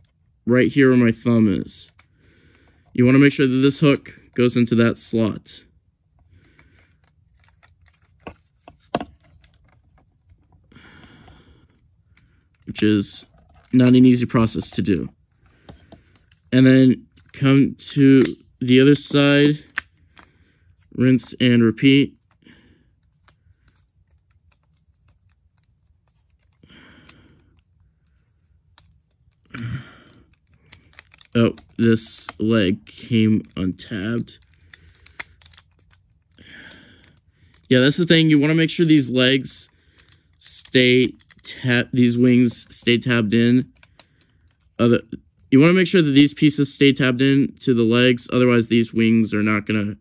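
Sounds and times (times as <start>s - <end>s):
plastic toy parts clicking: 30.3s - 32.4s, 34.2s - 39.1s, 40.0s - 41.5s, 43.7s - 44.7s.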